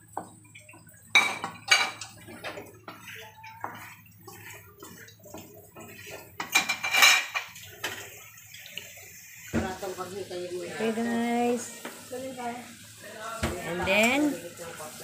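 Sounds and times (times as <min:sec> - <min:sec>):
wooden spatula scraping a wok: 0:02.3 - 0:06.8
wok clattering: 0:05.8 - 0:08.1.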